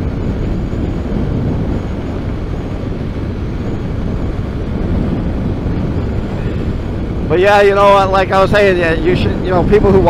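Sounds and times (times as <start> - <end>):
motorcycle engine running: 0.0 - 7.5
wind and road rushing noise: 0.0 - 10.0.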